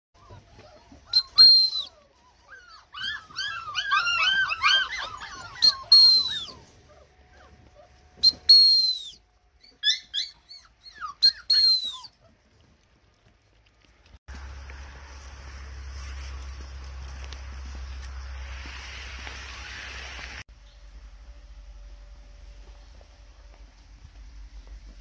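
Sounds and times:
puppy high squeals: 0.2s - 12.3s
puppies whining and yelping: 0.2s - 12.7s.

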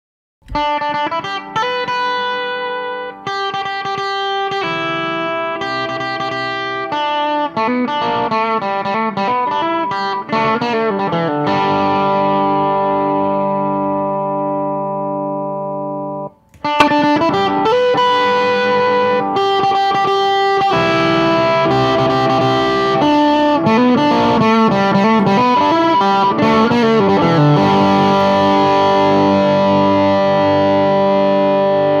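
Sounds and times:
distorted electric guitar: 0.4s - 32.0s.

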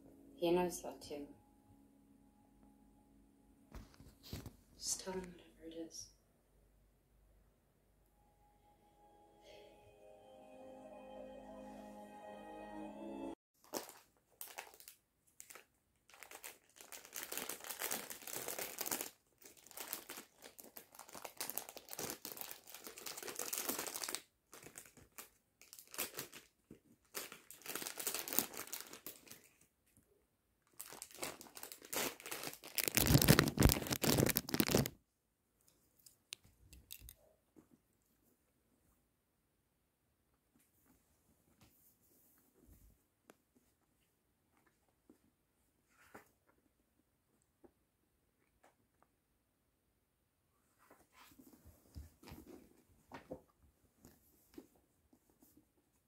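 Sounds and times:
plastic snack bag crinkling: 13.6s - 29.7s, 30.7s - 35.0s, 36.7s - 37.2s.

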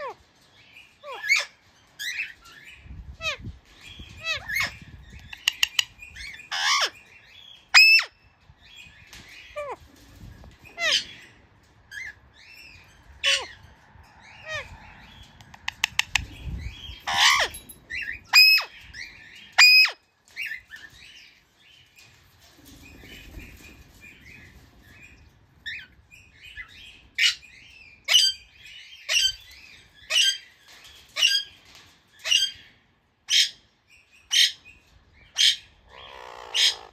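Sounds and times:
parakeet squawking: 35.4s - 36.9s.

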